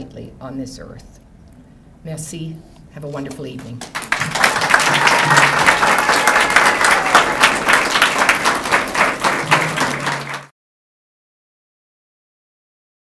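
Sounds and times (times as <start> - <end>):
audience applauding: 3.8 - 10.5.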